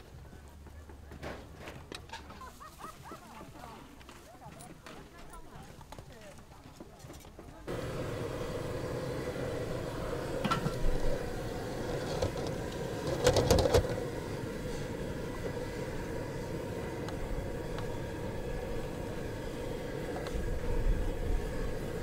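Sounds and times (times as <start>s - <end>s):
steady mechanical hum: 6.6s - 22.0s.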